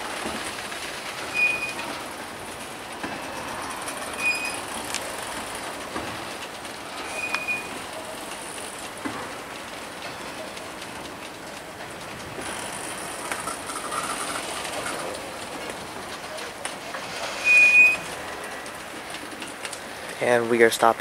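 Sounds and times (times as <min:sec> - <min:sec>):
train wheels rumbling on rails: 0:00.0 - 0:21.0
high-pitched wheel squeals: 0:01.3 - 0:01.8, 0:03.9 - 0:04.7, 0:06.9 - 0:07.8, 0:17.3 - 0:18.1.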